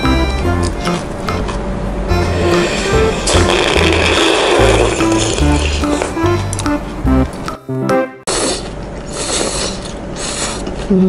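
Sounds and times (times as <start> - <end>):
background music: 0.0 - 8.2
noodles being slurped: 2.5 - 6.2.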